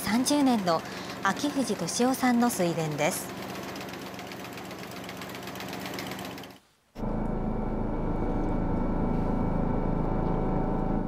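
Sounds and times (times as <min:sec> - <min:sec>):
steady engine drone: 0:07.0 - 0:11.0.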